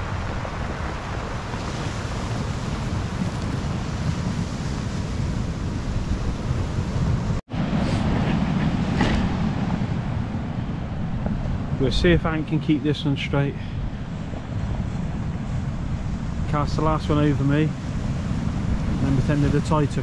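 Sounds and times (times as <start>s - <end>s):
surf breaking on pebbles: 0.0s - 7.3s
wind buffeting microphone: 0.0s - 20.0s.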